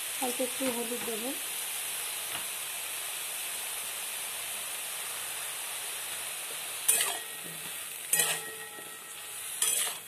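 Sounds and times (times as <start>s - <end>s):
vegetables sizzling in oil: 0.0s - 10.0s
metal spatula clattering on pan: 6.9s - 7.5s, 8.1s - 9.0s, 9.6s - 10.0s.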